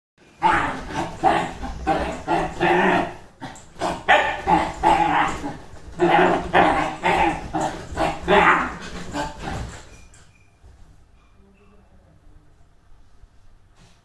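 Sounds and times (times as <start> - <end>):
dog barking excitedly: 0.4 - 9.9.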